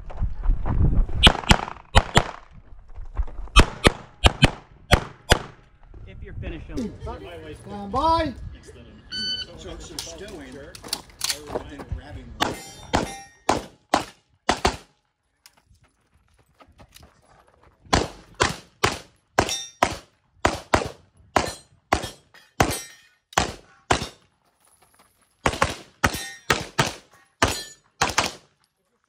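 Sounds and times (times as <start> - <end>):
pistol shots: 1.2 - 2.4, 3.6 - 5.6, 12.4 - 14.9, 17.9 - 22.8, 23.4 - 24.2, 25.4 - 28.5.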